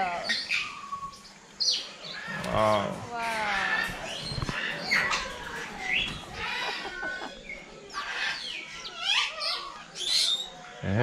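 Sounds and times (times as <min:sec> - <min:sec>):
parrots squawking and whistling: 0:03.6 - 0:10.6.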